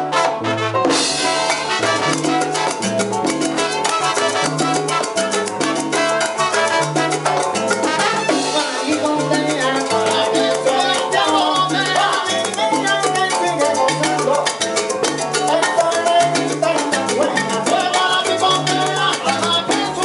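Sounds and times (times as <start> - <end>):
trumpets: 0.0 - 9.2
salsa band playing: 0.0 - 20.0
maracas shaking: 1.2 - 20.0.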